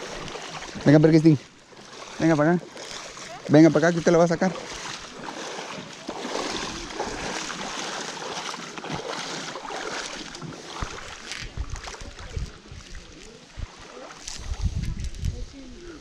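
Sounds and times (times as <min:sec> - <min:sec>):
water splashing around wading legs: 0:00.0 - 0:15.3
wind buffeting microphone: 0:08.9 - 0:16.0.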